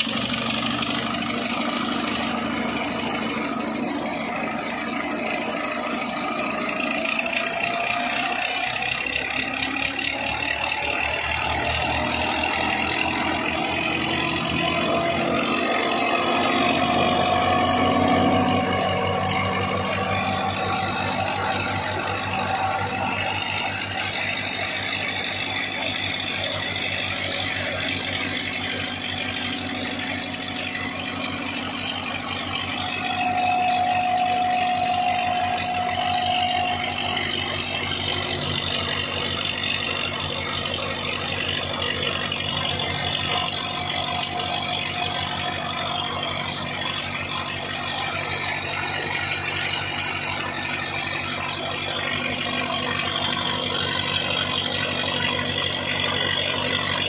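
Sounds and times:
tractor diesel engine knocking: 0:00.0 - 0:57.0
high whine: 0:12.0 - 0:56.9.

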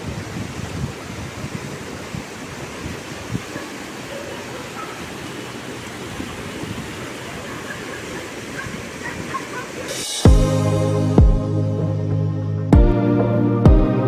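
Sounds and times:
river water rushing over rocks: 0:00.0 - 0:10.3.

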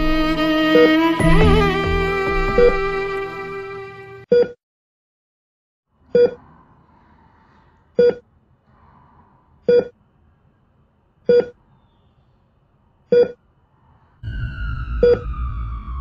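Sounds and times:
heart monitor beeping: 0:02.4 - 0:02.9, 0:06.2 - 0:06.4, 0:08.0 - 0:08.2, 0:09.7 - 0:10.0, 0:11.3 - 0:11.6, 0:13.1 - 0:13.4.

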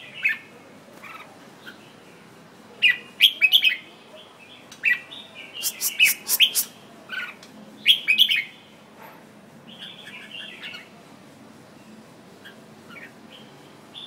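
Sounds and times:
bird chattering: 0:05.6 - 0:06.7
bird whistling song: 0:05.6 - 0:06.7.

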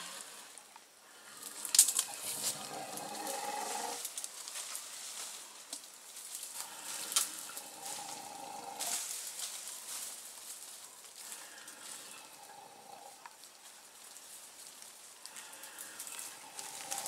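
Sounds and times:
brush and leaf litter crackling: 0:01.4 - 0:12.4, 0:13.6 - 0:17.0
twigs snapping: 0:01.6 - 0:02.1.

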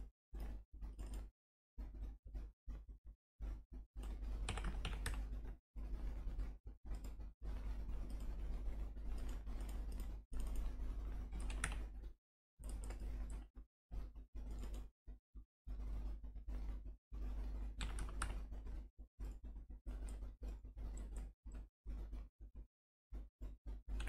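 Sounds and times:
keyboard typing: 0:04.1 - 0:05.3, 0:09.1 - 0:12.0, 0:17.8 - 0:18.5.

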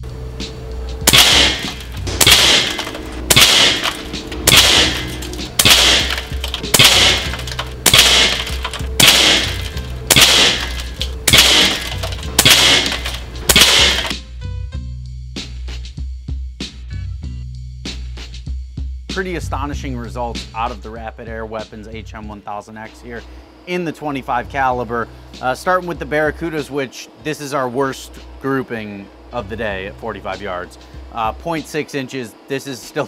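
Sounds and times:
background music: 0:00.0 - 0:23.4
air rifle shots with ringing tail: 0:01.0 - 0:14.2.

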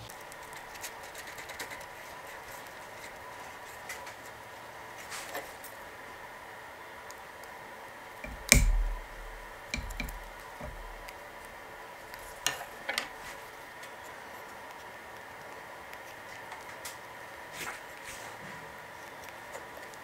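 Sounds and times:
faint high hum: 0:00.0 - 0:05.0, 0:05.6 - 0:20.0
sharp clicks: 0:08.2 - 0:11.2
knocks on wooden workbench: 0:08.3 - 0:11.0.

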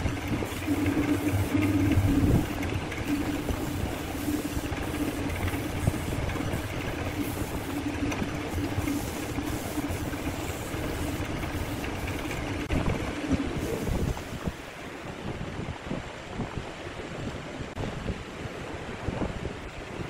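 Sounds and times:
wood lathe motor hum: 0:00.0 - 0:12.7.

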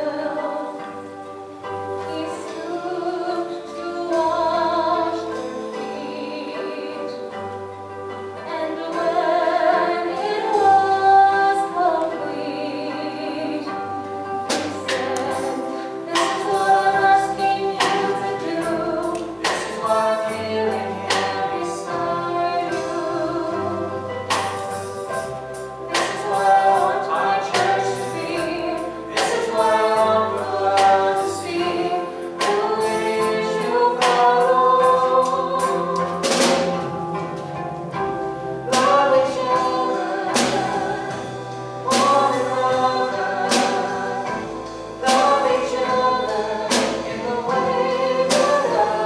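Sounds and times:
woman singing: 0:00.0 - 0:01.2, 0:01.9 - 0:07.4, 0:08.4 - 0:24.0, 0:25.9 - 0:36.8, 0:38.7 - 0:49.0
keyboard: 0:00.0 - 0:49.0
drum and cymbal hits: 0:14.4 - 0:49.0.

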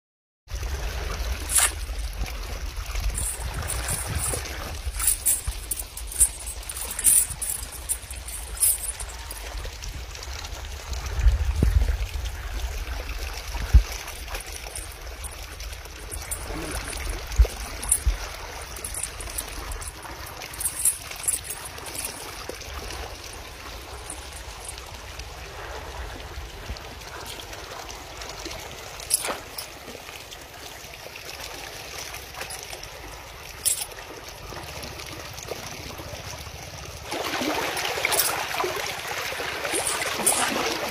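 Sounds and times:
river water trickling: 0:00.5 - 0:40.9
steel chain clinking: 0:01.4 - 0:02.1, 0:03.0 - 0:09.6, 0:14.1 - 0:24.9, 0:29.0 - 0:29.8, 0:32.4 - 0:32.8, 0:33.5 - 0:34.0, 0:37.8 - 0:38.6, 0:39.6 - 0:40.9.

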